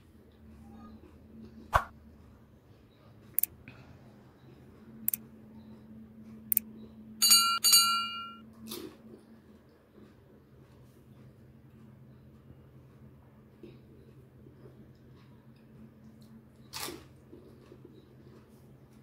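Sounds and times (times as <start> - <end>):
low steady hum: 0.0 - 10.4
bell chimes: 7.2 - 8.4.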